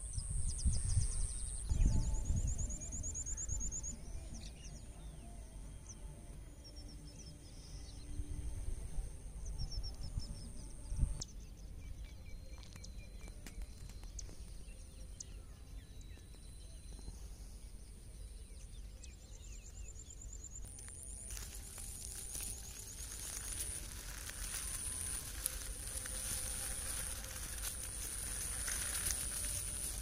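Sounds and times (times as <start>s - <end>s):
small birds chirping: 11.2s - 30.0s
low rumble: 21.1s - 30.0s.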